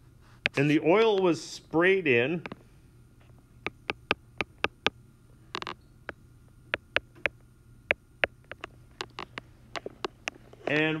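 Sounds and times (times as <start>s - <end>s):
low electrical hum: 0.0s - 11.0s
stylus tapping on a screen: 3.6s - 10.4s.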